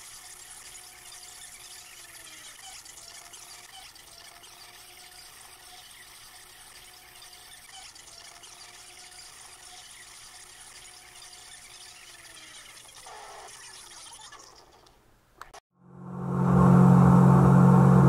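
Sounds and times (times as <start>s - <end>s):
jet drive tone: 15.8s - 18.0s.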